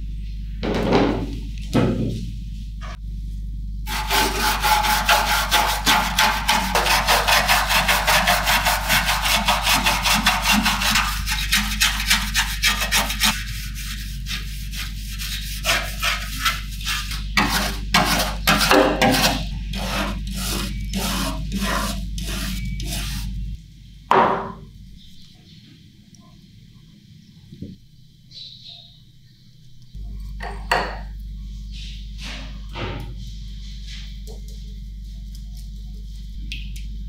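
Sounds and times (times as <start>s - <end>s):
brush scrubbing metal: 3.9s - 23.5s.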